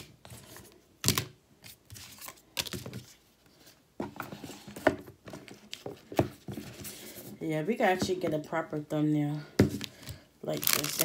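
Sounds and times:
packaging rustling and crinkling: 0:09.7 - 0:11.0.

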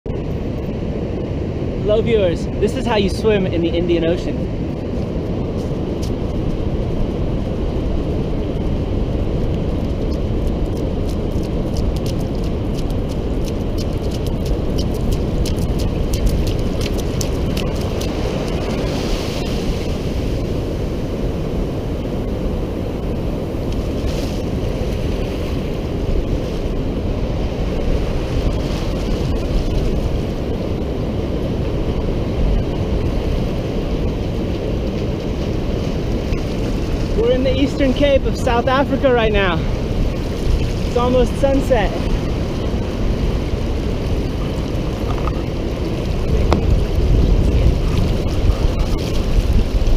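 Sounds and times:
wind rumbling on microphone: 0:00.0 - 0:49.9
ocean surf washing in: 0:00.2 - 0:49.9
sharp crackles: 0:09.4 - 0:19.8.

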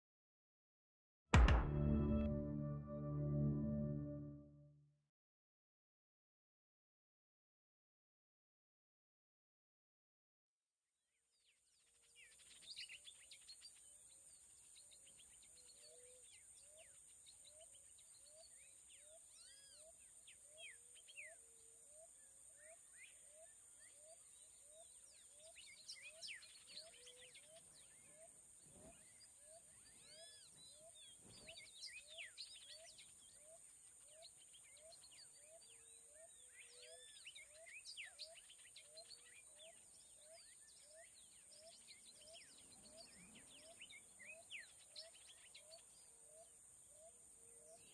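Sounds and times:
birds chirping and twittering: 0:24.2 - 0:46.5.

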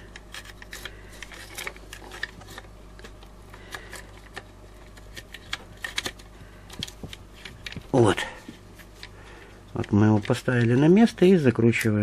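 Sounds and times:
fingers clicking and scraping plastic: 0:00.0 - 0:08.2
faint low hum: 0:00.0 - 0:12.0.

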